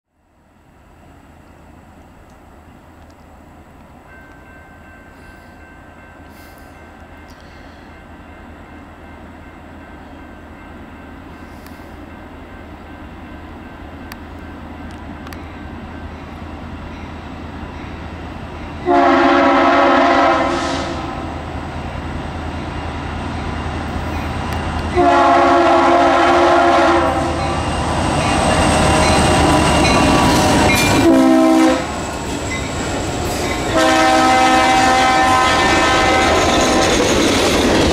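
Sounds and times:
diesel locomotive engine: 0:00.2 - 0:37.9
train air horn blasts: 0:18.8 - 0:21.5, 0:24.9 - 0:27.6, 0:30.2 - 0:32.0, 0:33.7 - 0:36.9.

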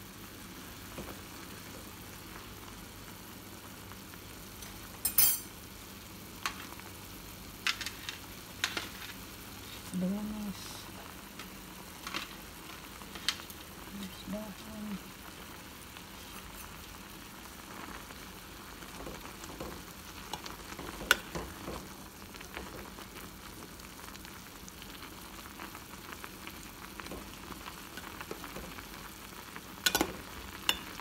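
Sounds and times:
spoon clinking on pot: 0:05.0 - 0:05.5, 0:29.9 - 0:30.9
pot bubbling: 0:07.6 - 0:31.0
spoon stirring in pot: 0:19.0 - 0:22.0, 0:29.9 - 0:31.0.

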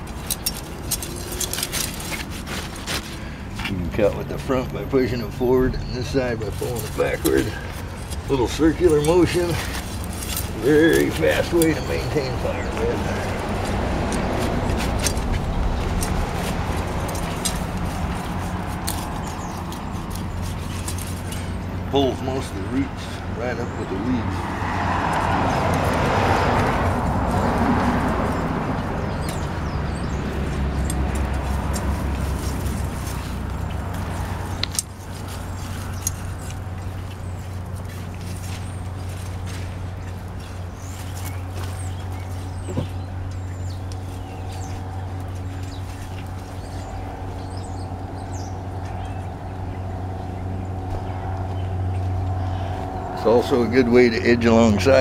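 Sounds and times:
low outdoor hum: 0:00.0 - 0:55.0
low traffic rumble: 0:00.0 - 0:55.0
small birds chirping: 0:00.0 - 0:55.0
high bird chirp: 0:04.7 - 0:07.7.

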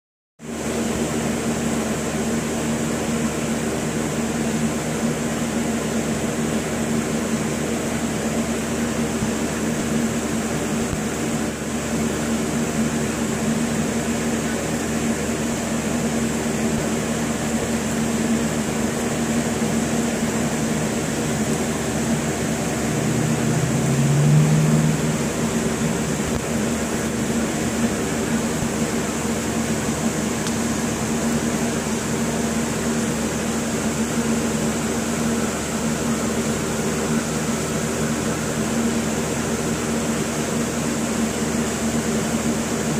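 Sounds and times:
fan humming with hiss: 0:00.4 - 0:42.9
low drone: 0:20.5 - 0:31.2.

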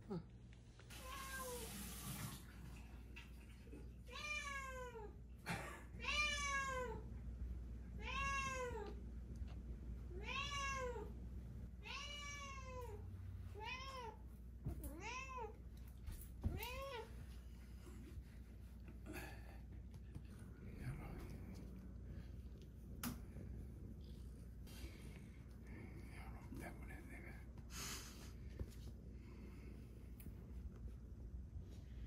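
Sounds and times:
cat meowing: 0:08.0 - 0:09.0, 0:10.1 - 0:11.1.

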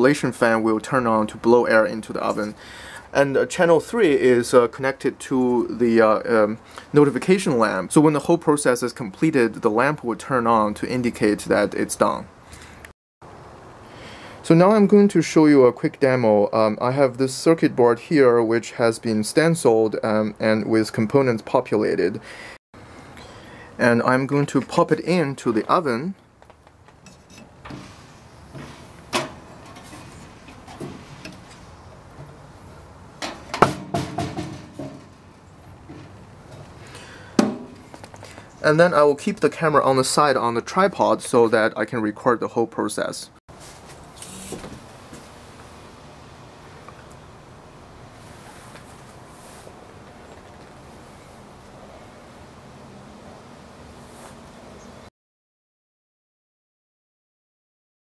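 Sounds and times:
background hiss: 0:00.0 - 0:08.2, 0:43.5 - 0:54.9
metal knocks and rattles: 0:33.2 - 0:36.6.

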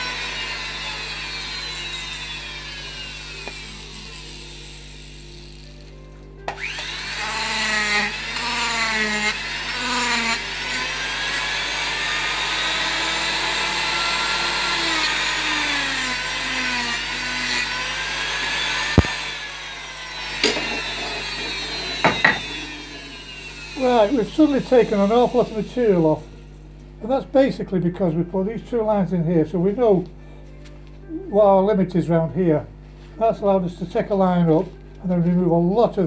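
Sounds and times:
power carving tool grinding wood: 0:00.0 - 0:26.6
knocks: 0:22.0 - 0:22.6.

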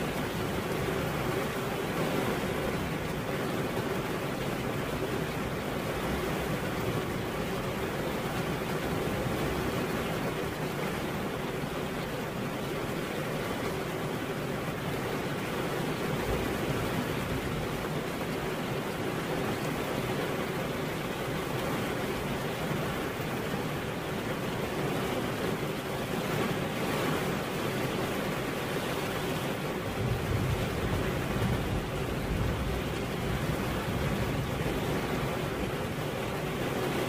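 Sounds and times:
steady rain falling: 0:00.0 - 0:37.0.

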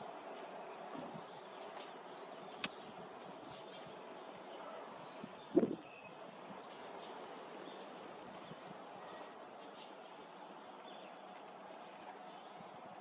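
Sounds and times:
outdoor background noise: 0:00.0 - 0:13.0
small birds chirping: 0:00.5 - 0:10.2.

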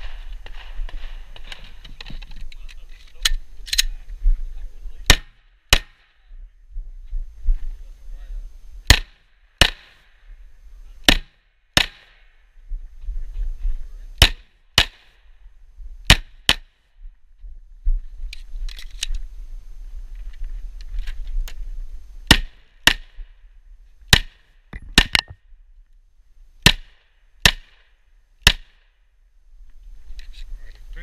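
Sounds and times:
pistol shots: 0:05.1 - 0:06.2, 0:08.9 - 0:10.0, 0:11.0 - 0:12.2, 0:14.2 - 0:15.1, 0:16.1 - 0:16.7.

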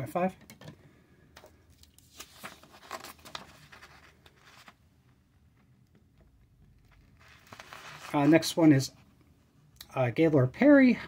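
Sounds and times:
paper shifting: 0:01.7 - 0:04.8, 0:06.7 - 0:08.6.

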